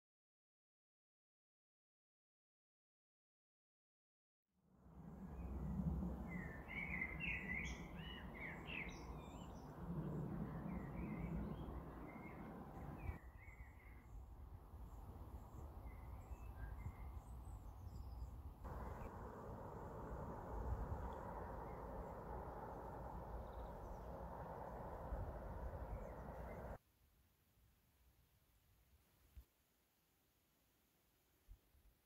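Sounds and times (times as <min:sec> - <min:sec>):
low outdoor rumble: 0:04.8 - 0:13.2, 0:18.6 - 0:26.8
songbirds chirping and singing: 0:06.3 - 0:14.2.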